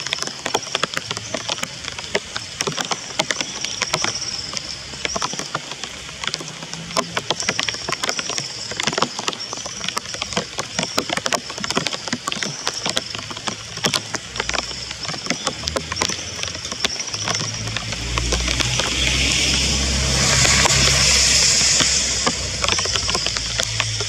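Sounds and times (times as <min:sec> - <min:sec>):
rapid sharp taps and ticks: 0:00.0 - 0:24.0
vehicle engine rumble approaching: 0:14.2 - 0:24.0.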